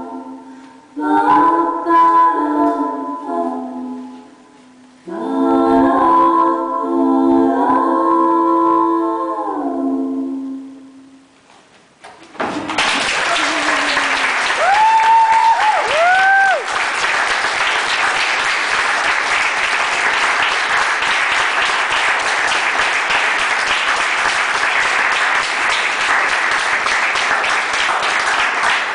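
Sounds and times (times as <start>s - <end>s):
audience applauding: 12.3s - 28.9s
high whooping cheers: 12.8s - 16.9s.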